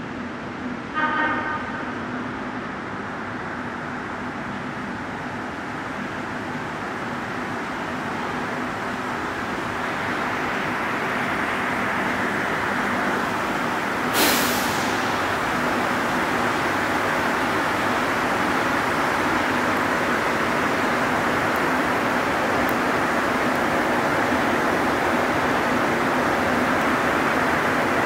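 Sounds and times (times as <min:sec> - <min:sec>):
metro train arriving: 0:00.0 - 0:28.0
sharp burst of noise: 0:14.1 - 0:15.5.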